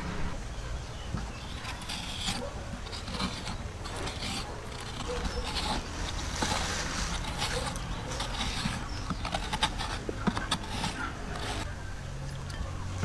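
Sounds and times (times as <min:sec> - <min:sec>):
scraper scraping coconut: 0:01.4 - 0:11.7.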